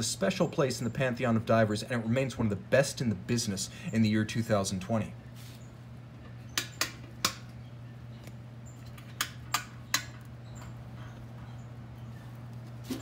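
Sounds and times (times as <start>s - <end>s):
steady low hum: 0.0s - 13.0s
small sharp clicks: 8.2s - 10.3s.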